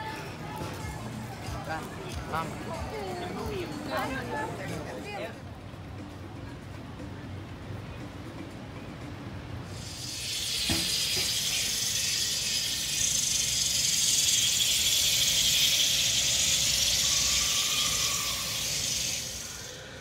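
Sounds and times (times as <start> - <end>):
high-pitched hiss: 9.6 - 20.0.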